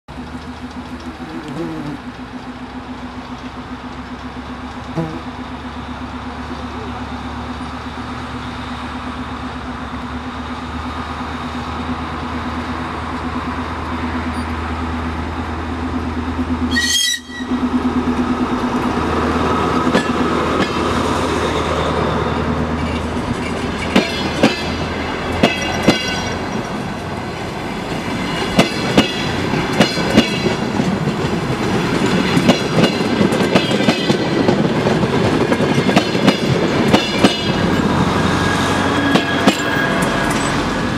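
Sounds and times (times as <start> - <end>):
wheels clacking over rail joints: 0.1 - 1.4, 11.7 - 40.9
diesel train engine drone: 0.1 - 40.9.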